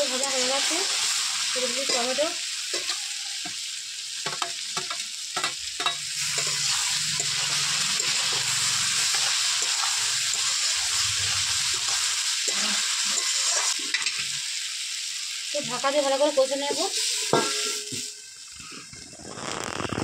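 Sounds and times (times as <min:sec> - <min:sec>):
vegetables sizzling in oil: 0:00.0 - 0:20.0
metal spatula scraping pan: 0:01.8 - 0:03.6, 0:04.3 - 0:14.2, 0:16.7 - 0:18.2.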